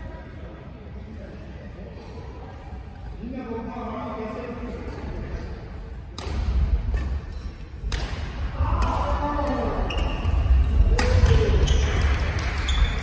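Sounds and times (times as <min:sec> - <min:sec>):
racket striking shuttlecock: 0:06.2 - 0:07.1, 0:07.8 - 0:09.0.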